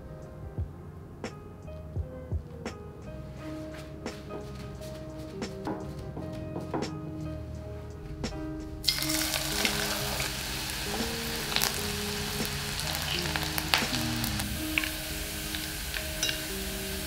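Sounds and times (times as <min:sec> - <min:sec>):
garlic sizzling in hot oil: 0:08.8 - 0:17.0
oil popping: 0:08.8 - 0:17.0.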